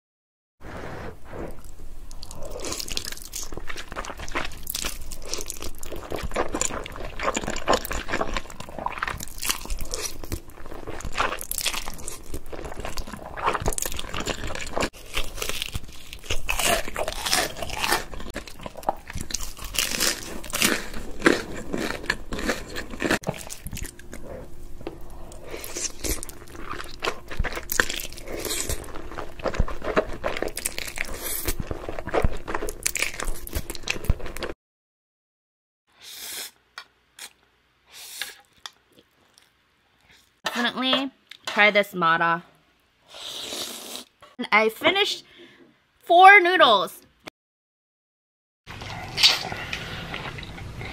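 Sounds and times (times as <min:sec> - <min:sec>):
crunchy bites of fried food: 0:02.1 - 0:24.0, 0:25.5 - 0:34.5
chewing: 0:02.1 - 0:34.5.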